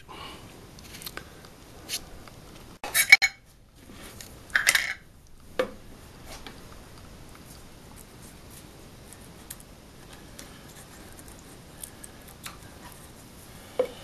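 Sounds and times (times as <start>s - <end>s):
tools clattering: 4.6s - 5.0s.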